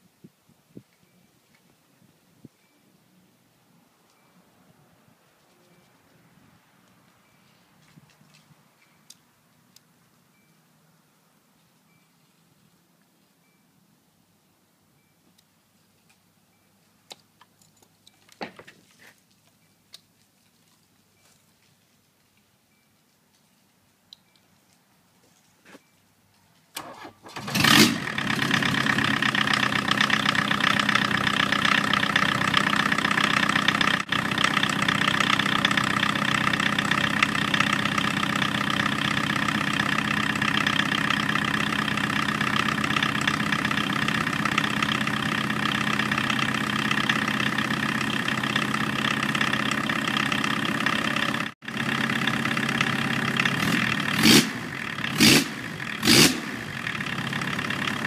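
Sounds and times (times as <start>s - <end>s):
diesel engine idling: 26.8s - 58.0s.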